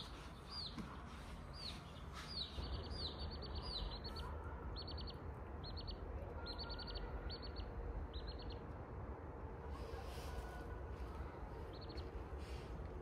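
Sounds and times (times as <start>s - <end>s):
chicks peeping: 0.0s - 8.8s, 11.1s - 12.7s.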